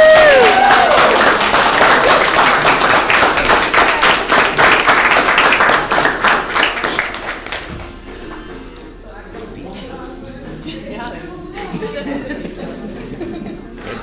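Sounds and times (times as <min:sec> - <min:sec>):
crowd applauding: 0:00.0 - 0:08.0.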